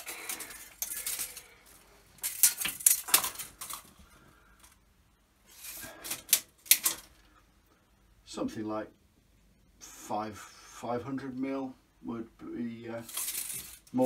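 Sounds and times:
tape measure clicking and rattling: 0:13.0 - 0:14.0.

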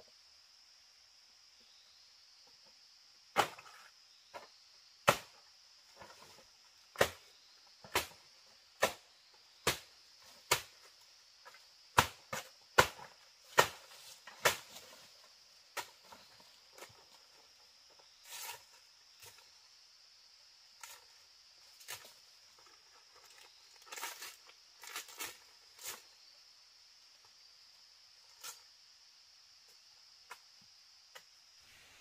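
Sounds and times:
high insect drone: 0:00.0 - 0:32.0
chopping blows on wood: 0:03.3 - 0:03.8, 0:05.0 - 0:05.4, 0:06.9 - 0:08.2, 0:08.8 - 0:10.9, 0:11.9 - 0:14.9.

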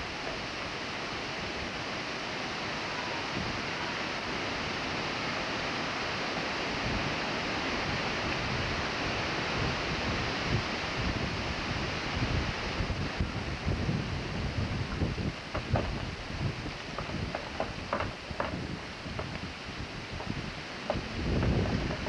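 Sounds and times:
rushing wind: 0:00.0 - 0:22.0
wind buffeting microphone: 0:07.8 - 0:22.0.

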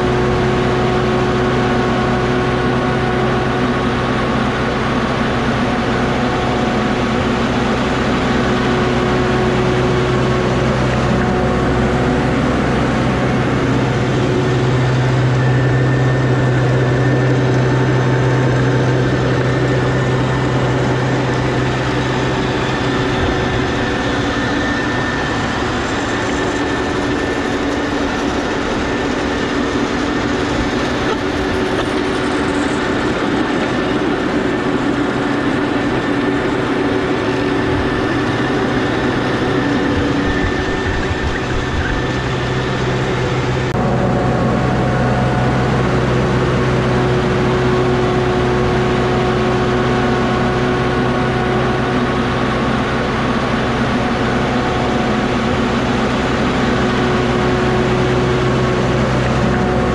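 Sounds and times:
engine noise with held tones: 0:00.0 - 0:59.9.

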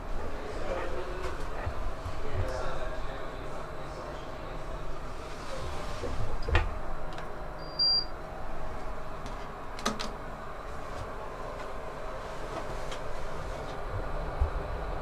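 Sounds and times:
elevator hum: 0:00.0 - 0:15.0
card reader beep: 0:07.6 - 0:08.1.

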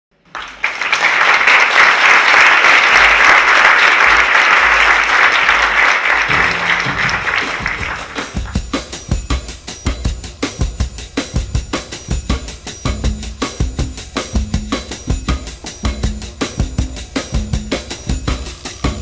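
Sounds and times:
audience applauding: 0:00.2 - 0:09.0
tango music with drum beat: 0:06.2 - 0:19.0.

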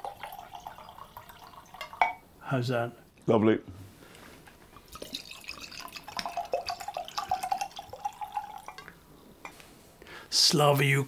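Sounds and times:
wine pouring into glass: 0:00.0 - 0:02.2, 0:04.8 - 0:09.0.

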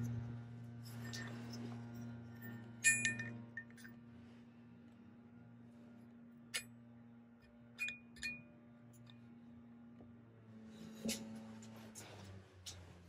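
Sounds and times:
steady low hum: 0:00.0 - 0:13.0
short ringing clinks: 0:00.8 - 0:04.0, 0:07.8 - 0:09.1.

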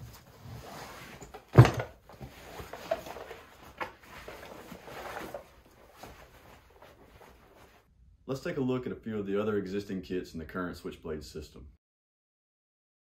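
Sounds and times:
rustling fabric and straps: 0:00.0 - 0:07.9.

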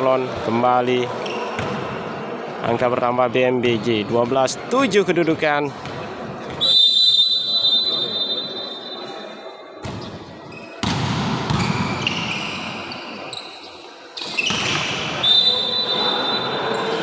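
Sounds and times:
crowd noise: 0:00.0 - 0:17.0
shrill whistle blowing: 0:06.6 - 0:09.2, 0:15.2 - 0:16.8.

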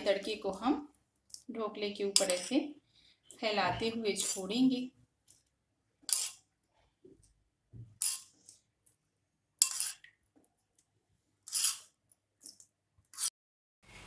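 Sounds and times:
spoon scraping metal pan: 0:02.0 - 0:02.7, 0:03.4 - 0:04.6, 0:06.0 - 0:06.5, 0:08.0 - 0:08.6, 0:09.6 - 0:10.1, 0:11.4 - 0:13.3.

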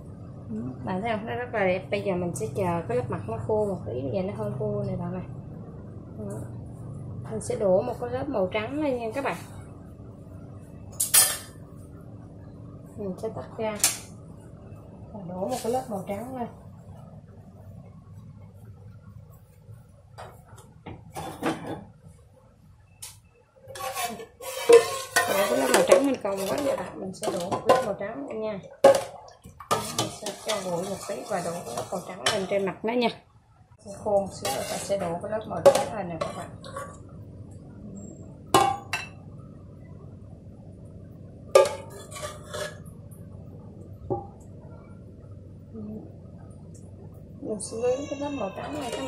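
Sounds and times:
low steady hum: 0:00.0 - 0:49.0
metal pot clattering: 0:23.7 - 0:28.0, 0:28.7 - 0:32.6, 0:34.3 - 0:37.1, 0:38.5 - 0:39.2, 0:41.5 - 0:42.9.

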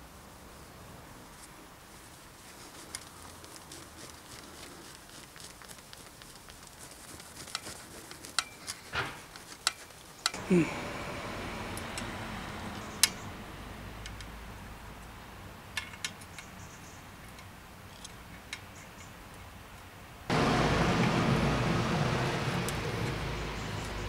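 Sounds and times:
loud steady rumbling: 0:20.3 - 0:23.6.

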